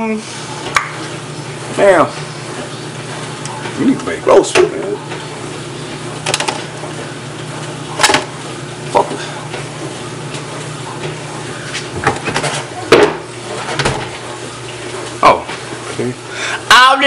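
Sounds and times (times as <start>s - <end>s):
refrigerator hum: 0.0s - 17.0s
items knocking in refrigerator: 12.0s - 14.1s.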